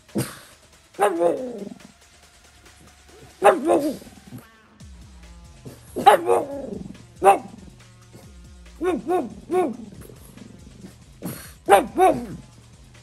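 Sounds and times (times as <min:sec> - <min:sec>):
dog barking: 0:01.0 - 0:01.8, 0:03.1 - 0:04.4, 0:05.7 - 0:07.7, 0:08.8 - 0:12.5.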